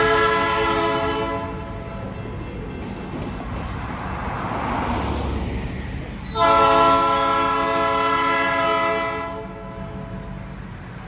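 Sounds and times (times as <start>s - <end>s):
locomotive air horn blast: 0.0s - 1.9s, 6.2s - 10.4s
low train rumble: 0.0s - 11.0s
car passing with tyre noise: 3.1s - 8.4s.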